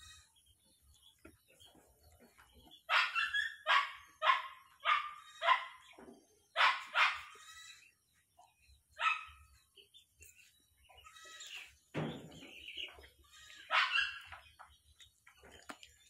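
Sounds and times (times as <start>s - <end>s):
dog barking: 2.9s - 5.9s, 6.6s - 7.3s, 9.0s - 9.5s, 13.7s - 14.3s.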